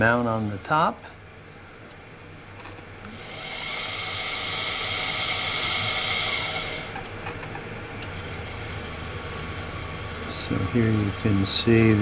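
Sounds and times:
tissue slicer drive whining: 3.0 - 7.1.

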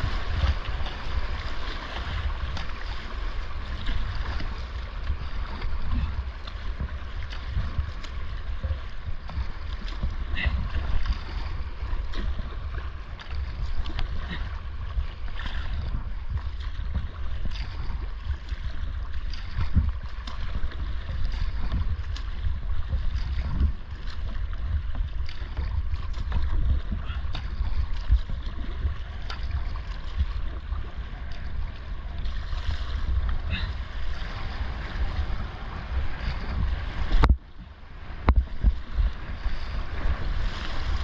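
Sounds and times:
rushing whitewater: 0.0 - 16.4
heavy low rumble: 0.0 - 41.0.

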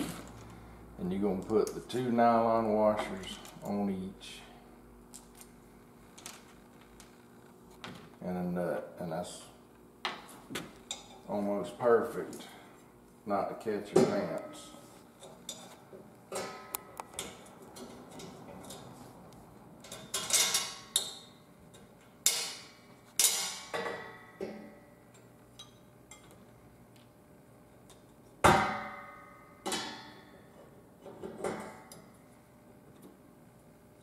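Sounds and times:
metal parts clinking and clanking: 19.8 - 21.2.

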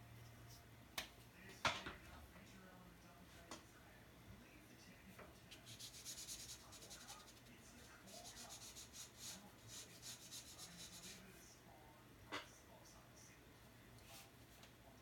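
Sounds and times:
brush pen scratching on paper: 5.6 - 11.2.

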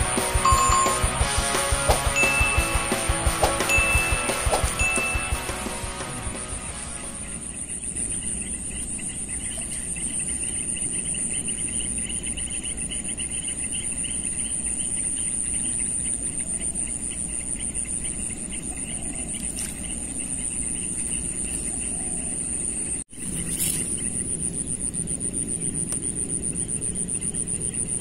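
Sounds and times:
insects pulsing chirp: 0.0 - 1.3, 2.1 - 5.6, 6.3 - 28.0
insects high trill: 0.0 - 1.4, 2.1 - 12.8.

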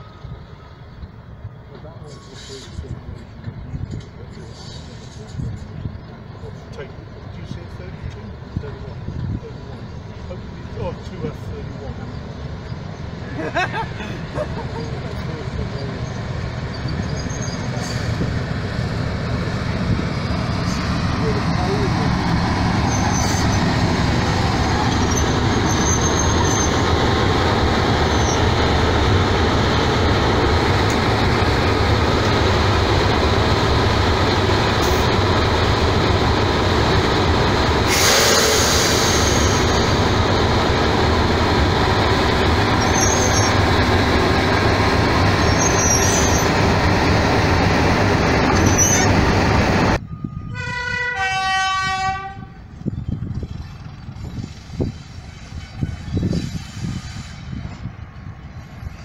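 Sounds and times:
diesel locomotive engine idling: 0.0 - 45.6
air hiss: 37.8 - 39.6.

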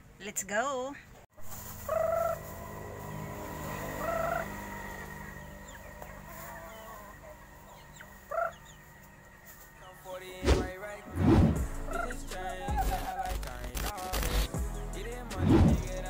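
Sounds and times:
chickens squawking: 1.5 - 2.9, 3.7 - 9.4, 11.9 - 13.4.

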